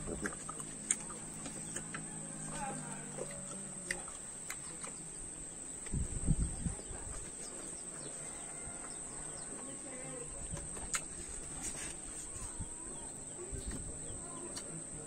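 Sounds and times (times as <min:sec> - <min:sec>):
low muffled thumps and rumble: 0:00.0 - 0:00.6, 0:05.8 - 0:07.4, 0:13.5 - 0:14.2
insects buzzing: 0:00.0 - 0:15.0.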